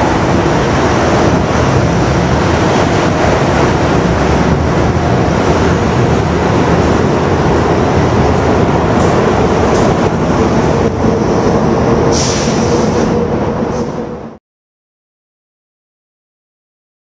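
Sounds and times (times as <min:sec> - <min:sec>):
train wheels rumbling on rail: 0:00.0 - 0:14.4.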